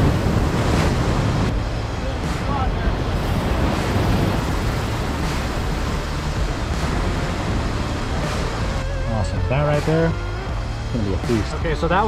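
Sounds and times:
surf breaking on rocks: 0.0s - 8.8s
wind on microphone: 0.0s - 8.9s.

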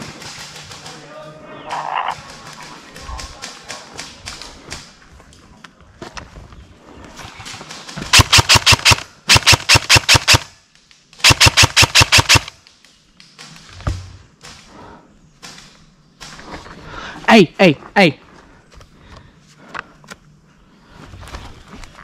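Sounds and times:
airsoft rifle full-auto bursts: 8.1s - 10.5s, 11.2s - 12.5s.

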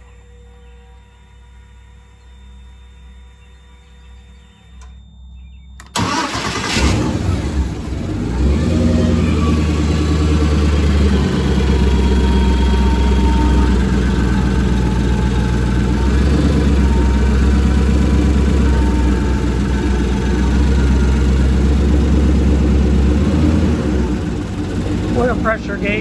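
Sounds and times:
faint steady hum: 0.0s - 6.0s
boat engine starting and idling: 5.7s - 26.0s.

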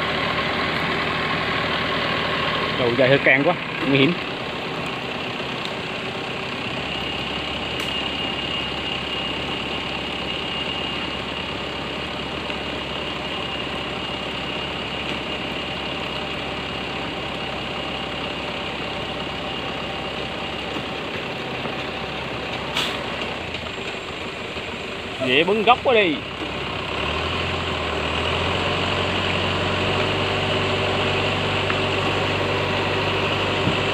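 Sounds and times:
high whine: 0.0s - 26.3s
truck engine under load: 0.0s - 33.9s.

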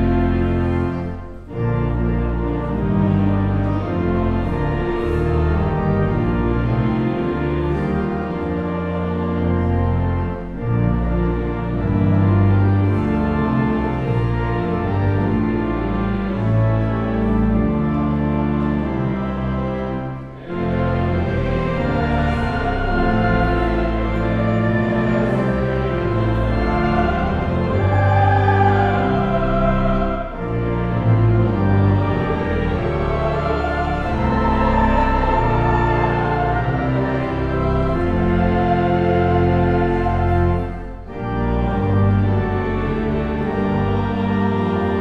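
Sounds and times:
pipe organ playing a hymn: 0.0s - 45.0s.

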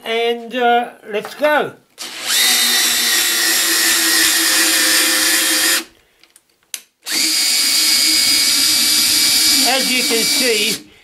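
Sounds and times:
cordless drill running: 2.0s - 5.9s, 7.0s - 10.9s.

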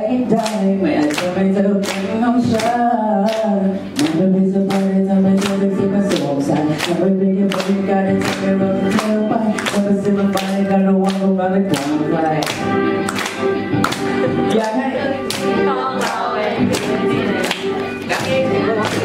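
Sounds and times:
man singing a slow pop ballad: 0.0s - 12.4s
steady beat: 0.3s - 19.0s.

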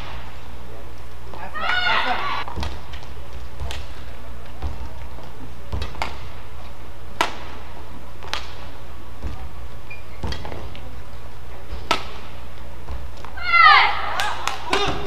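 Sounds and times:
racket striking shuttlecock: 1.3s - 10.9s, 11.6s - 13.4s, 14.0s - 15.0s
footsteps thudding on court: 2.4s - 13.4s.

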